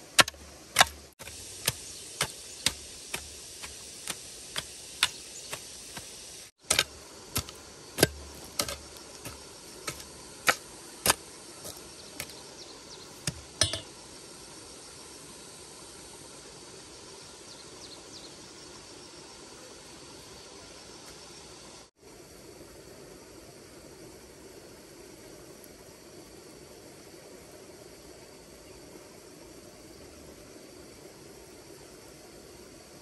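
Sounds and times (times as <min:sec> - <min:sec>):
low hiss: 0:00.0 - 0:33.0.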